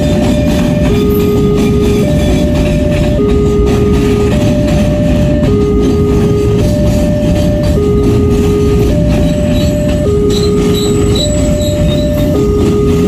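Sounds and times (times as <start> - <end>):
train wheels rumbling on rails: 0.0 - 13.0
two-tone crossing alarm: 0.0 - 13.0
high wheel squeals: 8.9 - 13.0.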